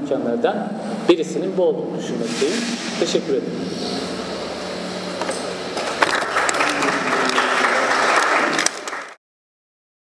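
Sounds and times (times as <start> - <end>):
audience applauding: 5.8 - 9.2.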